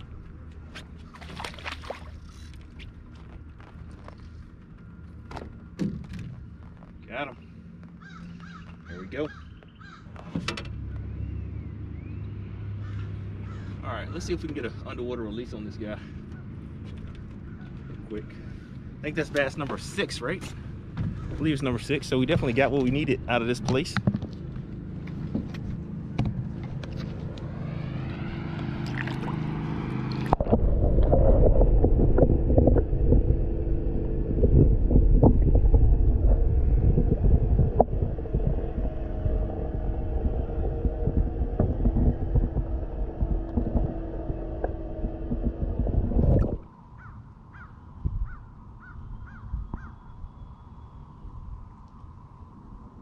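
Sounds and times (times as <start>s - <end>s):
wind and hull noise: 0.0s - 53.0s
faint steady whine: 14.0s - 53.0s
boat motor speeding up: 21.7s - 47.4s.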